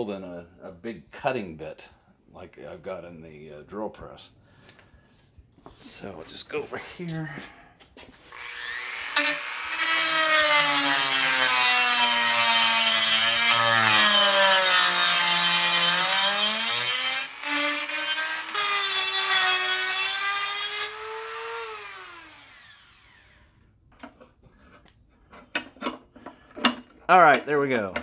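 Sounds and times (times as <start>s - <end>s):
rotary tool grinding metal: 8.3s - 23.4s.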